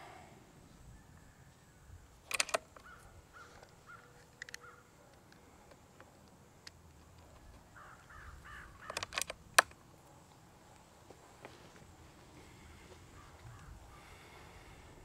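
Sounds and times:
air rifle loading clicks: 0:02.2 - 0:09.8
crows cawing: 0:02.8 - 0:05.0, 0:07.7 - 0:09.2, 0:12.8 - 0:14.8.

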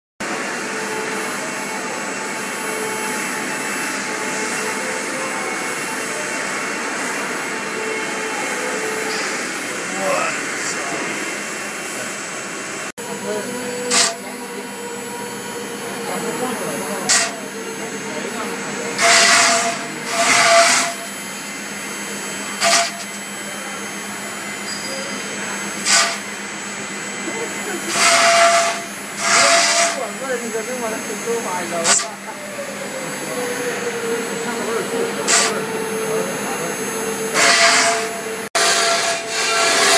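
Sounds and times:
router spindle running: 0:00.2 - 0:39.9
hissing bursts of cutter: 0:13.8 - 0:14.3, 0:15.6 - 0:17.5, 0:18.9 - 0:21.2, 0:22.4 - 0:23.8, 0:25.4 - 0:32.2, 0:35.2 - 0:35.6, 0:37.2 - 0:39.9.

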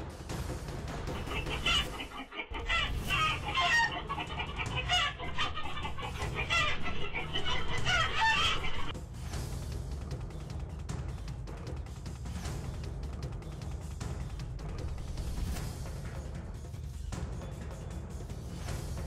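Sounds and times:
hens squawking and cackling: 0:01.1 - 0:08.9.

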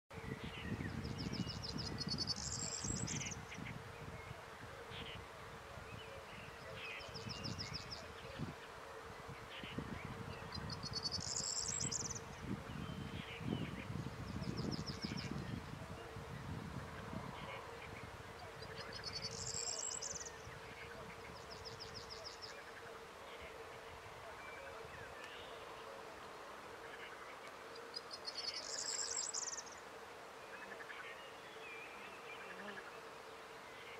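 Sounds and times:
small birds trilling and chirping: 0:00.1 - 0:26.2, 0:26.8 - 0:33.9
birds singing high trills: 0:00.2 - 0:04.4, 0:09.6 - 0:15.6, 0:17.5 - 0:20.6, 0:28.0 - 0:29.8
wind buffeting microphone: 0:00.2 - 0:04.4, 0:05.1 - 0:19.0
insect hum: 0:00.4 - 0:33.9
insect buzz: 0:07.1 - 0:12.6.

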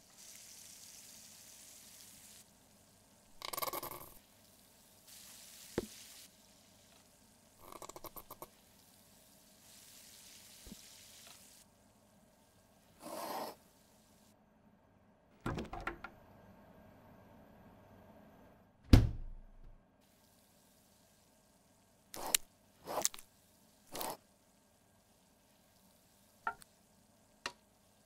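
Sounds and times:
fridge opening clatter: 0:15.5 - 0:16.1
squeeze bottle squirting: 0:23.9 - 0:24.2.

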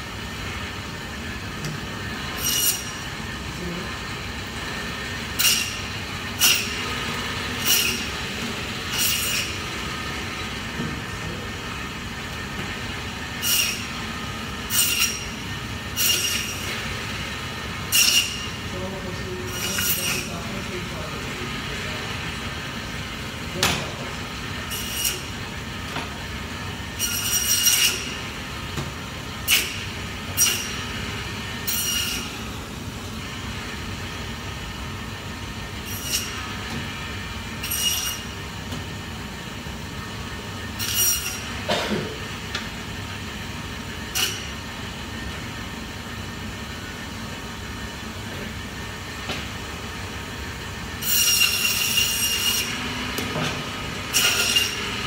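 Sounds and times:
band saw humming: 0:01.3 - 0:45.4, 0:50.4 - 0:55.0
saw blade screeching through bone: 0:02.4 - 0:03.0, 0:05.4 - 0:05.8, 0:06.4 - 0:06.8, 0:07.6 - 0:08.1, 0:08.9 - 0:09.6, 0:13.4 - 0:13.9, 0:14.7 - 0:15.4, 0:16.0 - 0:16.6, 0:17.9 - 0:18.5, 0:19.5 - 0:20.3, 0:24.7 - 0:25.3, 0:27.0 - 0:28.1, 0:35.8 - 0:36.4, 0:37.6 - 0:38.3, 0:40.8 - 0:41.5, 0:51.0 - 0:52.8, 0:54.1 - 0:54.8.

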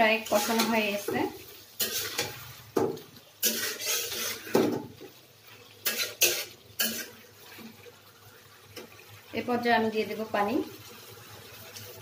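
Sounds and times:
metal spatula scraping a pan: 0:00.0 - 0:07.8.

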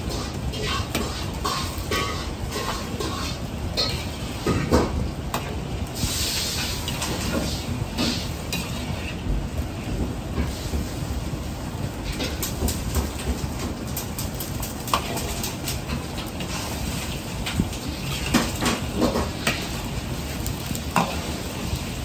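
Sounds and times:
metal ladle scraping a pan: 0:00.0 - 0:05.4, 0:06.0 - 0:09.2
eggs sizzling in oil: 0:00.0 - 0:22.0
gas burner rumble: 0:00.0 - 0:22.0.

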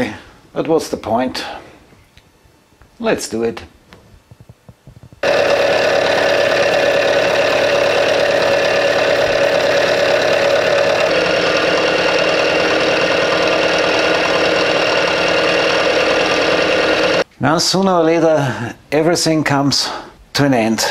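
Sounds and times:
milling machine cutting steel: 0:05.2 - 0:17.2.

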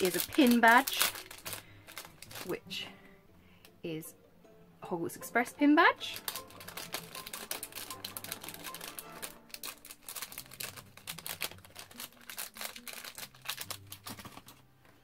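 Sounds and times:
paper and plastic packaging rustling: 0:00.0 - 0:02.6, 0:06.1 - 0:15.0.

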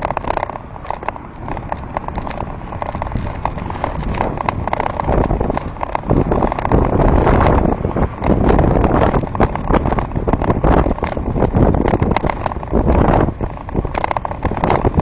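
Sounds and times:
bicycle clicks and rattles: 0:00.0 - 0:15.0
low rumble: 0:00.0 - 0:15.0
road noise: 0:00.0 - 0:15.0.

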